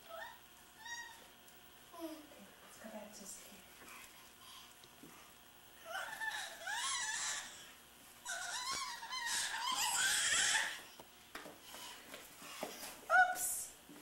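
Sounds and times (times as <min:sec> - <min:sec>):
baby squealing and babbling: 0:00.1 - 0:01.2, 0:05.9 - 0:10.8.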